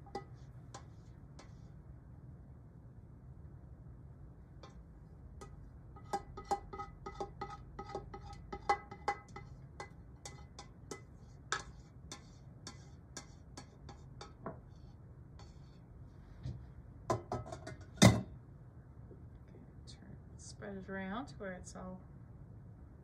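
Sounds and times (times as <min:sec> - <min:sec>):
metal spoon scraping metal pot: 0:00.0 - 0:01.6, 0:05.4 - 0:15.8.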